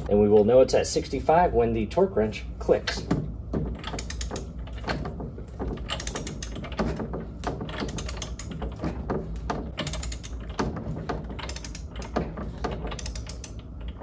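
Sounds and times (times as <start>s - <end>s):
torque wrench ratcheting clicks: 3.8s - 4.9s, 5.8s - 6.9s, 11.4s - 14.0s.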